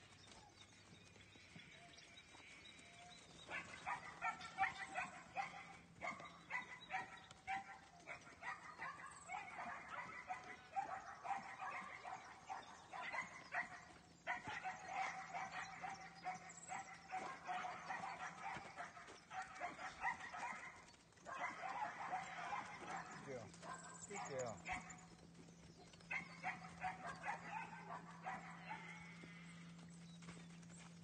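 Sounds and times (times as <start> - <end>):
dog barking and yapping: 3.5 - 25.1, 26.0 - 29.0.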